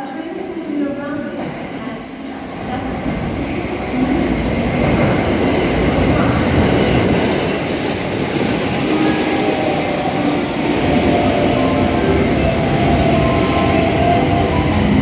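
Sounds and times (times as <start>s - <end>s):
electric train pulling in: 2.7s - 15.0s.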